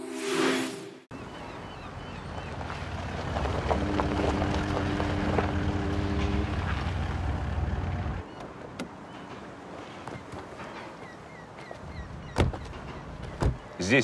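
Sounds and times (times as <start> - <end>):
car engine humming: 1.3 - 10.6.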